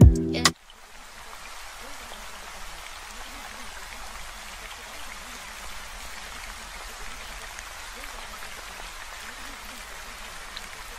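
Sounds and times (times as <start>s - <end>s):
rain: 0.0s - 10.9s.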